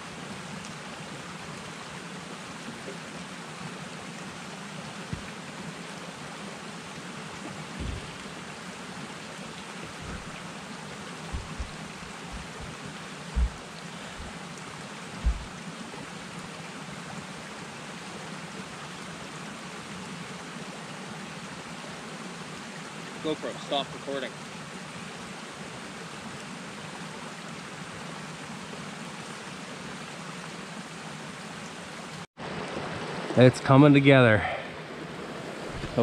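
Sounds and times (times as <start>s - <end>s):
rain falling in forest: 0.0s - 36.0s
dull low thumps: 7.8s - 8.2s, 9.8s - 10.4s, 11.2s - 14.4s, 15.2s - 15.6s.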